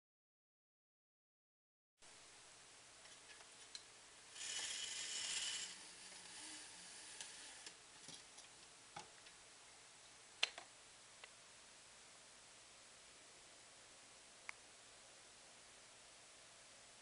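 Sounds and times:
window blinds pulled up by cord: 4.4s - 7.8s.

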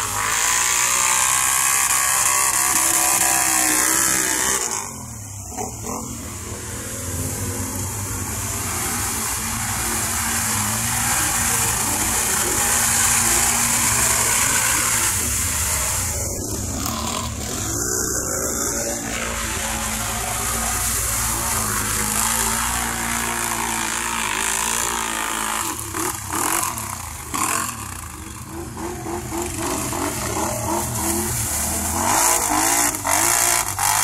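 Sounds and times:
atv engine revving: 0.0s - 34.0s.

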